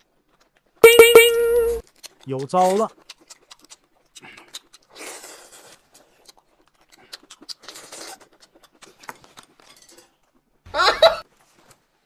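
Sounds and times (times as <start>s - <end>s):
food crunching and clicking: 1.8s - 10.5s.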